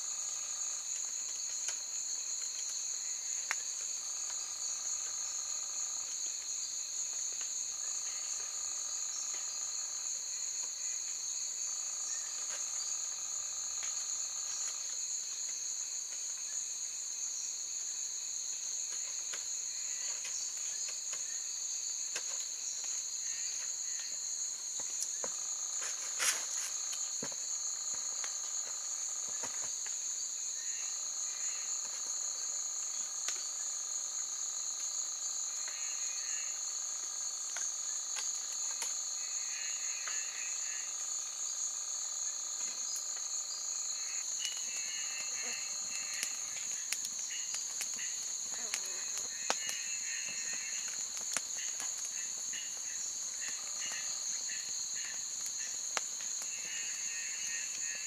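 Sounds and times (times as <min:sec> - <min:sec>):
high shrill insect trill: 0:35.6 - 0:37.2, 0:39.0 - 0:58.0.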